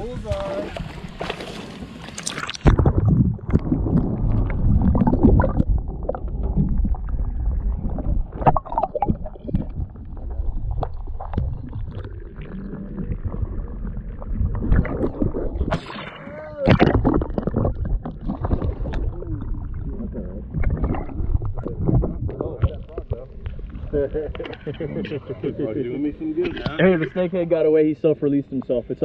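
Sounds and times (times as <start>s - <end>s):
underwater rumbling and gurgling: 0.0s - 27.2s
underwater knocks and clicks: 2.1s - 16.0s, 16.7s - 24.8s.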